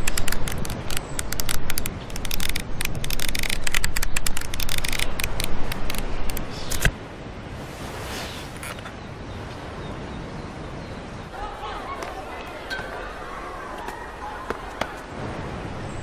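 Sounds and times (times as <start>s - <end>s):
flipbook pages riffling: 0.0s - 6.9s
paper snap: 0.0s - 6.9s.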